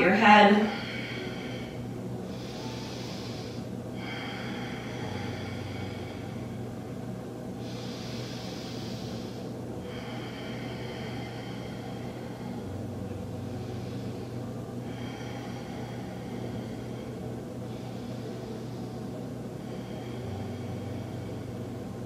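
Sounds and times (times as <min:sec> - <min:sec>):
steady low hum: 0:00.0 - 0:22.0
person breathing deeply: 0:00.6 - 0:22.0.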